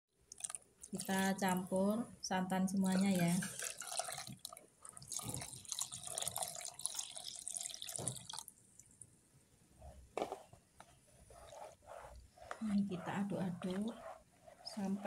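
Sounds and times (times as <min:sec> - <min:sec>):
spatula stirring batter: 0:00.2 - 0:01.7, 0:02.7 - 0:08.4, 0:09.8 - 0:15.0
liquid trickling into a bowl: 0:00.3 - 0:01.6, 0:02.8 - 0:09.0.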